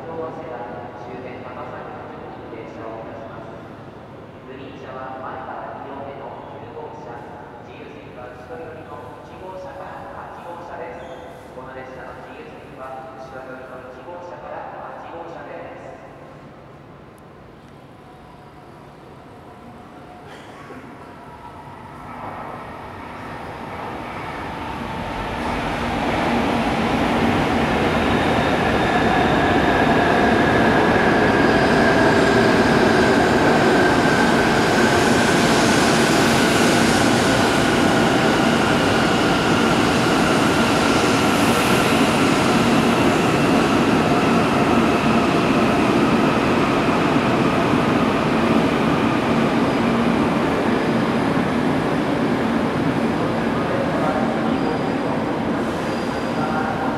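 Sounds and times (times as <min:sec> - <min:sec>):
high-speed train arriving: 0:00.0 - 0:56.9.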